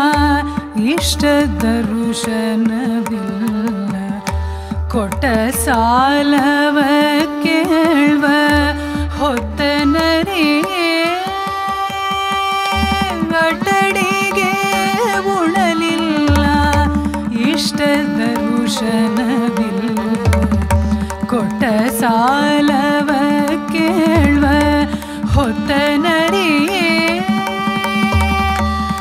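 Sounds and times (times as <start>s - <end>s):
violin: 0.0s - 29.0s
woman singing: 0.0s - 29.0s
hand drum strokes: 9.3s - 29.0s
tanpura drone: 10.9s - 29.0s.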